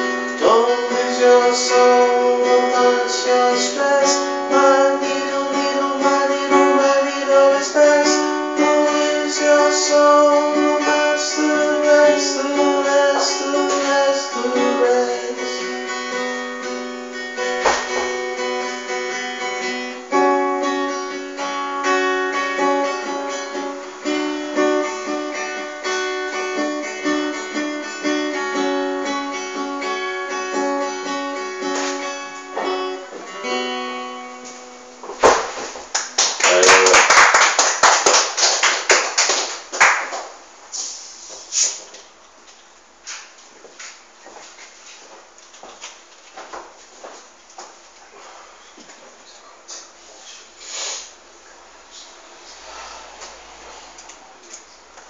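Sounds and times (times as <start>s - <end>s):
solo acoustic guitar: 0.0s - 35.9s.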